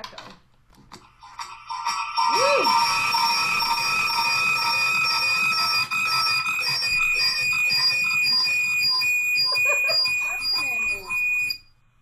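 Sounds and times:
audio feedback ringing tones: 1.7s - 11.7s
pulsing feedback squeal: 6.6s - 11.6s.

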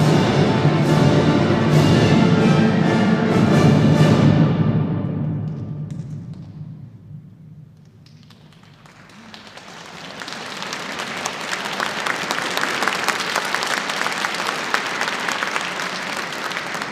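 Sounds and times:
orchestral chord echo: 0.0s - 5.8s
audience applauding: 8.0s - 16.9s.

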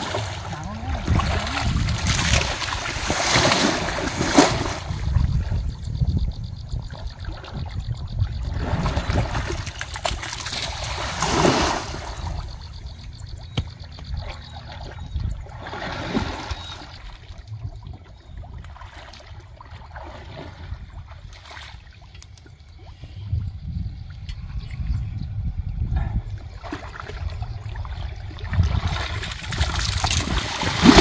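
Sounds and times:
water sloshing and splashing: 0.0s - 5.7s, 6.8s - 23.2s, 26.2s - 31.0s
low steady rumble: 23.2s - 29.1s.

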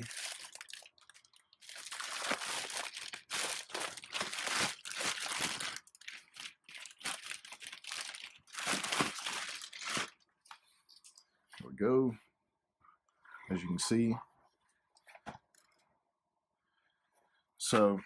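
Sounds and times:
plastic bag crinkling: 0.0s - 10.3s.

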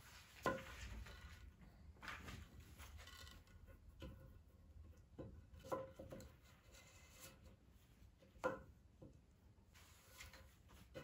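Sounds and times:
wooden knocks and taps: 3.9s - 6.5s, 8.2s - 9.2s.

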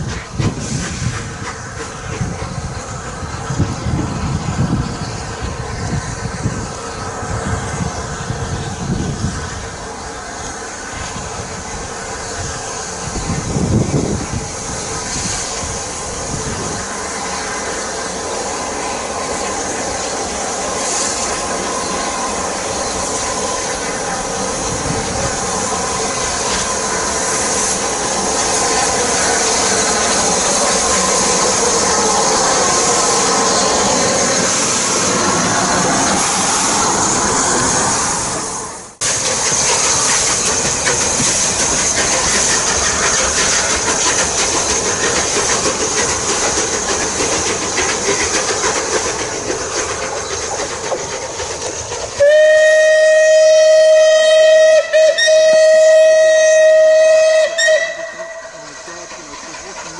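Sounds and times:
steam hiss: 0.0s - 59.9s
steam locomotive passing: 0.0s - 59.9s
carriage wheels clattering on rails: 39.0s - 52.2s, 58.6s - 59.9s.

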